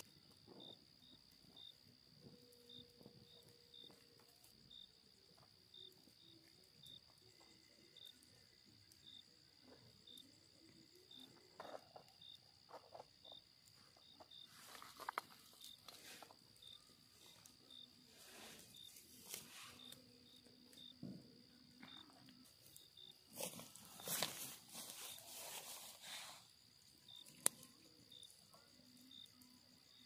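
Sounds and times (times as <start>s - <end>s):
crickets trilling: 0.0s - 30.0s
insect short chirps: 12.1s - 21.0s.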